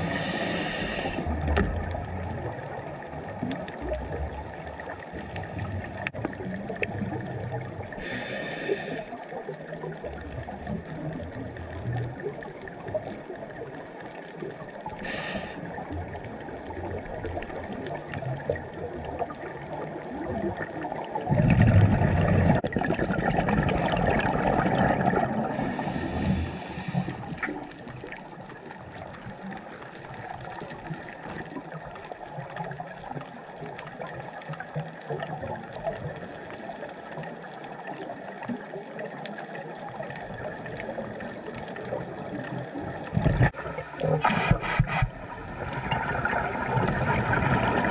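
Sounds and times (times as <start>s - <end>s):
regulator inhale hiss: 0.0s - 1.3s, 8.0s - 9.2s, 15.0s - 15.6s, 25.5s - 27.4s, 43.6s - 45.1s
low underwater gurgling: 0.0s - 47.9s
exhaled bubbles rushing: 15.6s - 26.5s, 39.9s - 47.9s.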